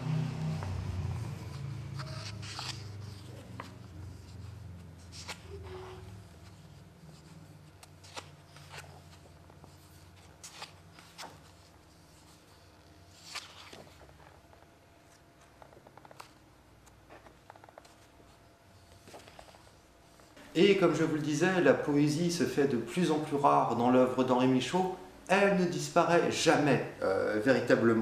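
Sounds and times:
low hum: 0:00.0 - 0:08.0
book pages turning: 0:00.1 - 0:20.9.

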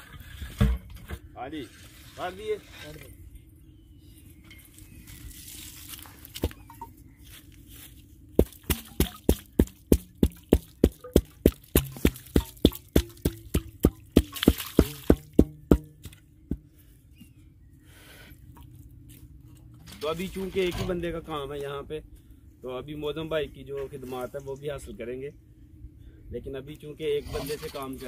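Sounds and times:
sharp wet slaps: 0:08.4 - 0:16.2.

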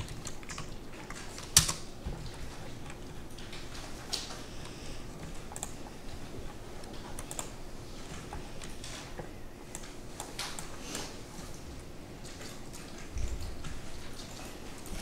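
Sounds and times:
computer keyboard clicking: 0:00.0 - 0:07.6, 0:08.2 - 0:10.8.

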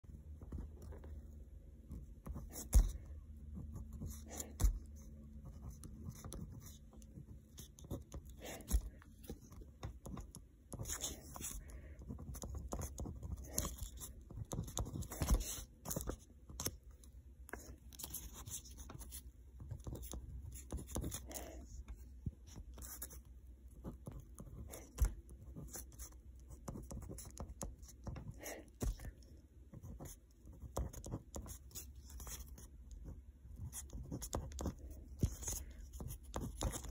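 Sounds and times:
pen scratching on card: 0:02.2 - 0:16.8, 0:17.5 - 0:21.6, 0:22.5 - 0:36.9.

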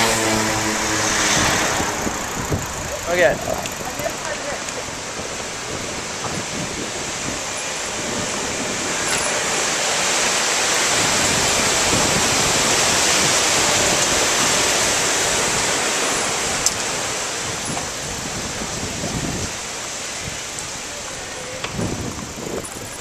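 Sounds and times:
water gushing through lock gates: 0:00.1 - 0:23.0.

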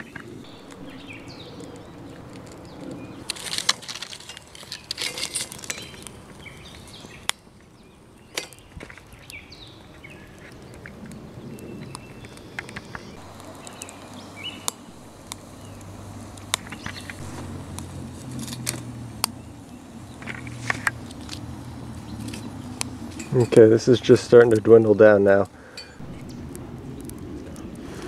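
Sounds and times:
birds calling: 0:00.0 - 0:24.5, 0:25.5 - 0:27.8
wood fire crackling: 0:00.0 - 0:28.0
sharp pops and clicks: 0:10.4 - 0:21.5.

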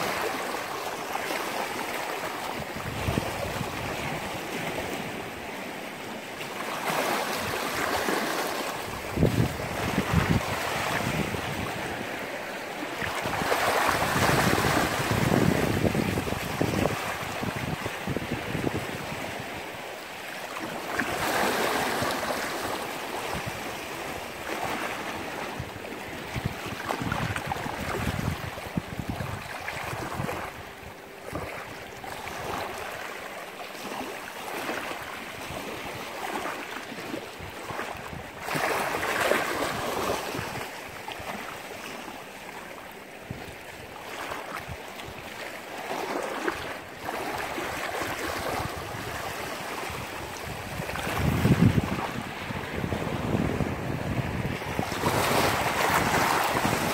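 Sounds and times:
sea waves washing on shore: 0:00.0 - 0:56.9
wind buffeting microphone: 0:02.4 - 0:05.5, 0:08.8 - 0:12.3, 0:13.0 - 0:19.8, 0:23.0 - 0:32.8, 0:47.2 - 0:56.9.

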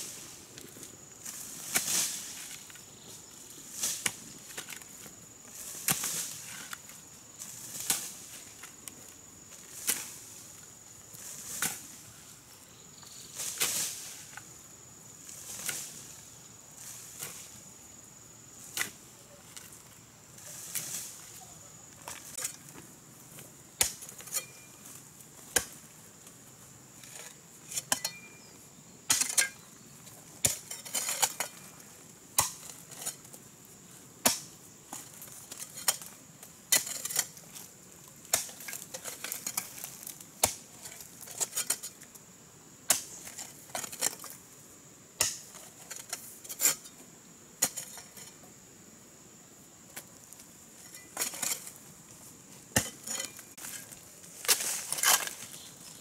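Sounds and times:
metal tools striking stony earth: 0:23.8 - 0:25.8, 0:27.0 - 0:29.7, 0:30.4 - 0:31.7, 0:32.4 - 0:33.3, 0:34.2 - 0:37.7, 0:38.3 - 0:42.0, 0:45.2 - 0:47.0, 0:47.6 - 0:48.4, 0:50.8 - 0:51.8, 0:52.7 - 0:55.6.

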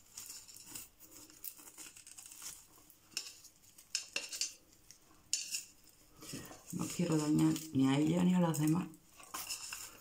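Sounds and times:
pebbles scraping: 0:00.0 - 0:03.4, 0:05.4 - 0:10.0.

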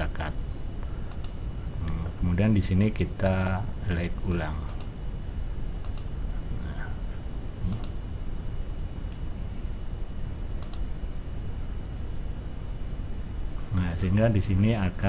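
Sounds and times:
low room hum: 0:00.0 - 0:15.0
computer mouse clicking: 0:00.8 - 0:02.0, 0:04.7 - 0:04.9, 0:05.8 - 0:06.1, 0:07.6 - 0:08.0, 0:10.6 - 0:10.9.

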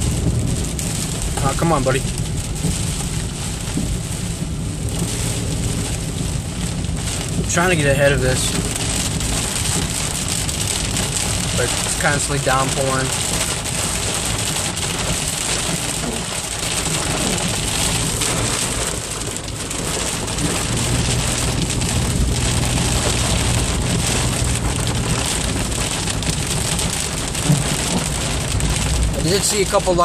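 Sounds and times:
heavy rain drumming on car roof: 0:00.0 - 0:30.0
tyres hissing on wet road: 0:00.0 - 0:30.0.

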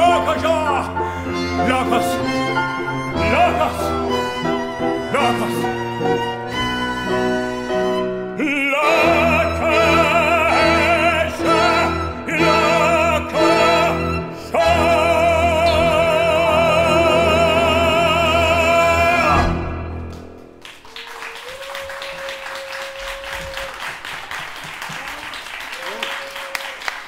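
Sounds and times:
man singing baritone: 0:00.0 - 0:04.1, 0:05.0 - 0:05.9, 0:08.3 - 0:19.9
tango ensemble playing: 0:00.0 - 0:20.6
audience applause: 0:20.1 - 0:27.0.

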